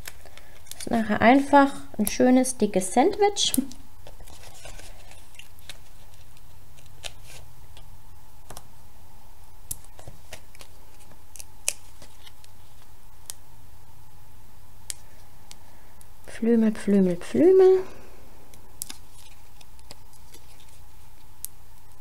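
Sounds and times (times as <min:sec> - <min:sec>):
faint steady hum: 0:00.0 - 0:22.0
paper rustling: 0:04.0 - 0:07.5, 0:09.8 - 0:12.9, 0:18.9 - 0:21.3.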